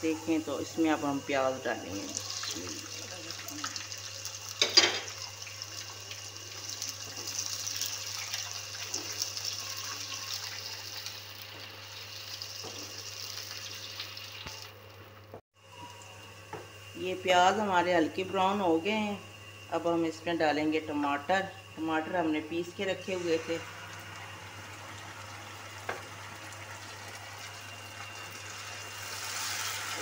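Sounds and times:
onions sizzling in oil: 0:00.0 - 0:15.3, 0:21.9 - 0:30.0.

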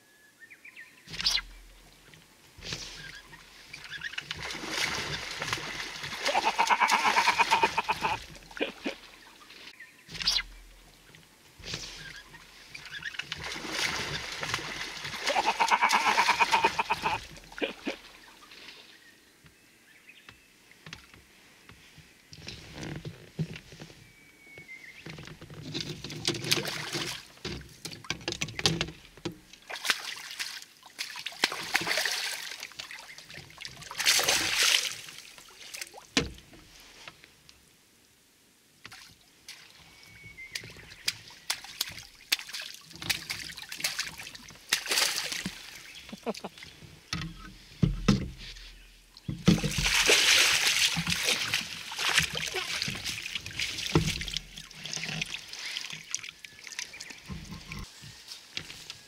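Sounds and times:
fish thrashing and splashing water: 0:02.6 - 0:09.2, 0:11.6 - 0:18.2, 0:26.2 - 0:27.4, 0:29.6 - 0:36.0, 0:40.6 - 0:46.3, 0:49.4 - 0:57.9.

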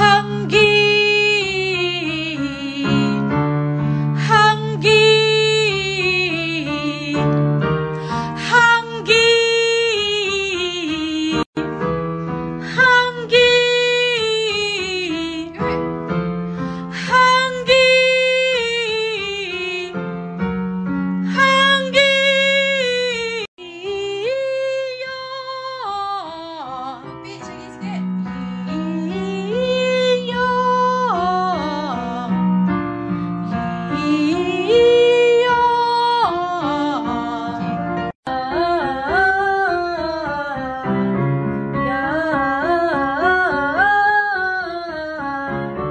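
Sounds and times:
woman singing slow song: 0:00.0 - 0:03.4, 0:04.2 - 0:07.4, 0:08.3 - 0:11.6, 0:12.6 - 0:15.8, 0:16.8 - 0:20.0, 0:21.2 - 0:32.4, 0:33.5 - 0:41.1.

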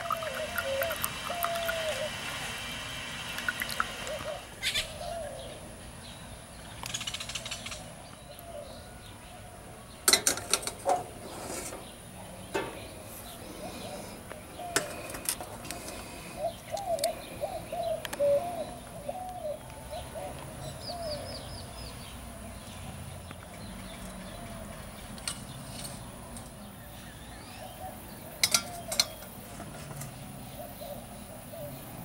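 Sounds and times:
bird calling wavering notes: 0:00.0 - 0:05.7, 0:16.3 - 0:21.4
metal cookware clinking: 0:28.4 - 0:29.2.

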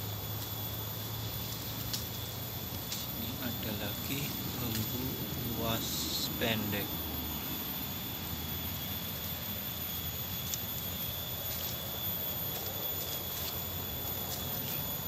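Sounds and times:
footsteps in dry leaves: 0:00.3 - 0:05.0, 0:10.2 - 0:15.0
twigs snapping: 0:01.5 - 0:03.1.

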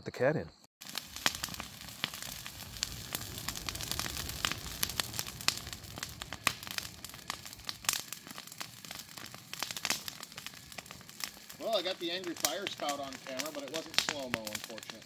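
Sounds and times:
bonfire crackling and popping: 0:00.8 - 0:15.0
low rush of flame: 0:00.8 - 0:15.0.

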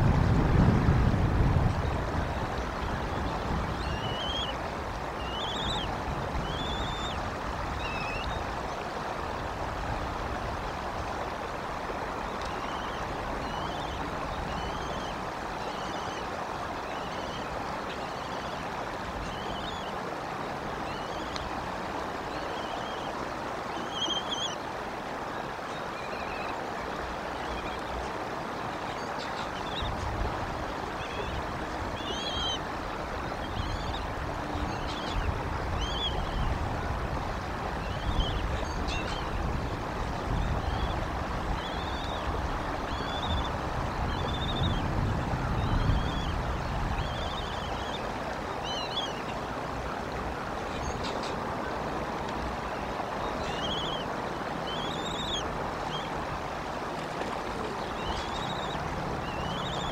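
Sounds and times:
eaglet peeping: 0:05.2 - 0:07.2, 0:32.0 - 0:32.6, 0:53.4 - 0:56.1, 0:57.8 - 0:59.9.

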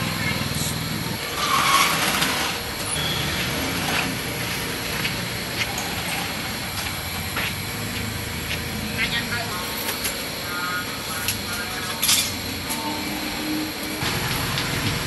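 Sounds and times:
rumble of passing vehicles: 0:13.7 - 0:15.0.

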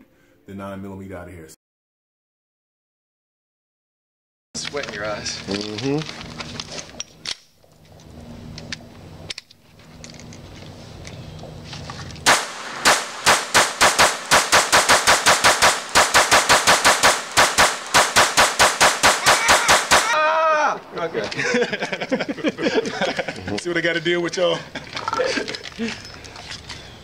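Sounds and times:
pistol rapid fire: 0:12.3 - 0:20.2.

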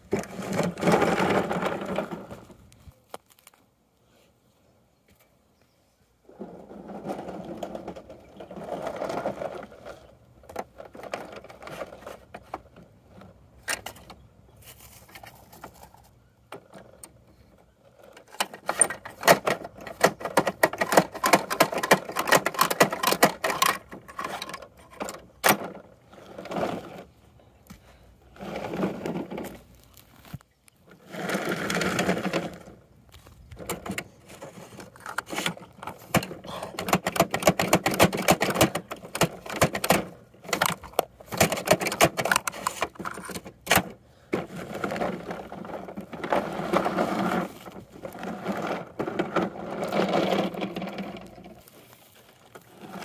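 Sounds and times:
plastic toy parts clicking and rattling: 0:18.1 - 0:25.8, 0:31.7 - 0:44.0.

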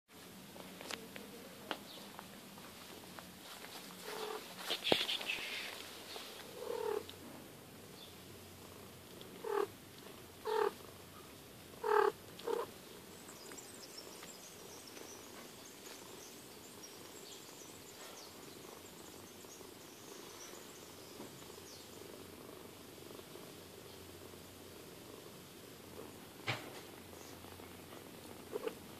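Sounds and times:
cat purring: 0:02.4 - 0:28.9.

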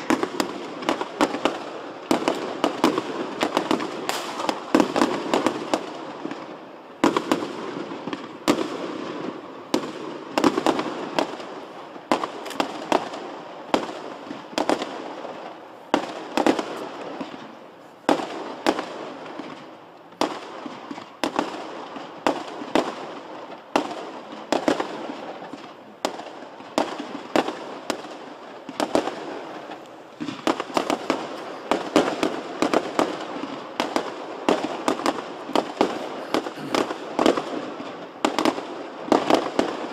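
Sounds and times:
firework shells bursting: 0:00.0 - 0:05.6, 0:28.8 - 0:39.4.

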